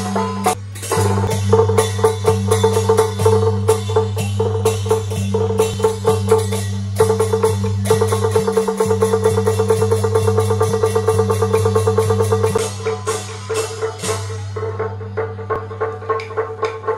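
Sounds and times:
hand cymbals: 0:00.0 - 0:16.9
rapid drum strokes: 0:00.0 - 0:16.9
wood block clacks: 0:15.5 - 0:16.9.

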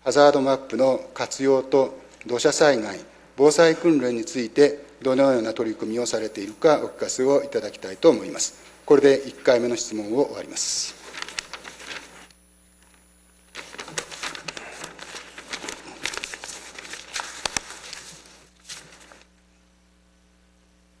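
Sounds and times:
paper rustling and crinkling: 0:10.6 - 0:19.4.

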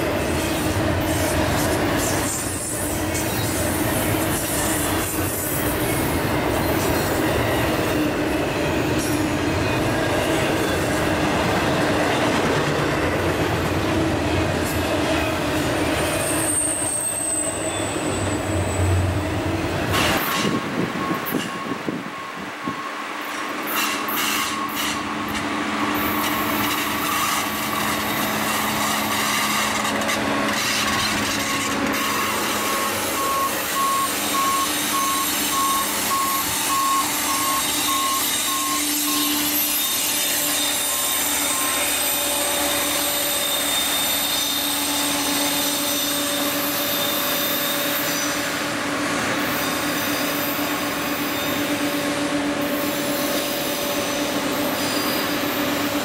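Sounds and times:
rail machine diesel engine: 0:00.0 - 0:56.0
beeping warning alarm: 0:20.8 - 0:23.2, 0:32.0 - 0:39.9, 0:41.0 - 0:42.0.

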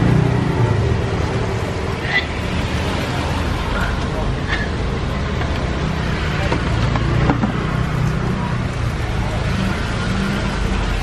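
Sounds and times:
street traffic noise: 0:00.0 - 0:11.0.

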